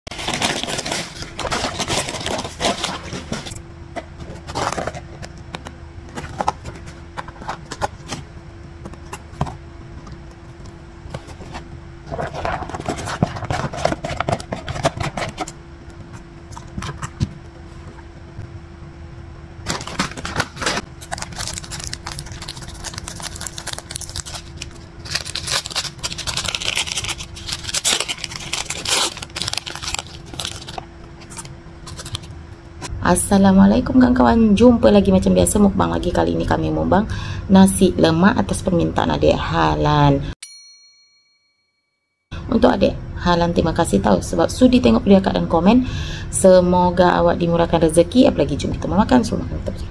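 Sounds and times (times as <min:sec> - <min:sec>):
paper rustling and crinkling: 0:00.1 - 0:03.6, 0:04.2 - 0:05.3, 0:11.1 - 0:15.5, 0:19.6 - 0:32.3
faint steady hum: 0:00.1 - 0:40.4, 0:42.3 - 0:49.9.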